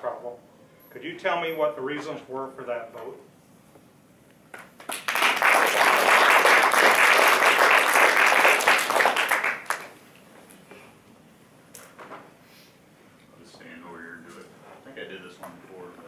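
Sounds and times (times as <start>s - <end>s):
audience applauding: 4.8s - 10.0s.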